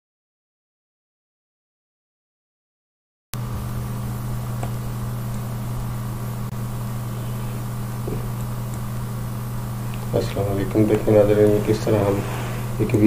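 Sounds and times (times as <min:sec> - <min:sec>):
low hum: 0:03.4 - 0:13.0
even hiss: 0:09.6 - 0:13.0.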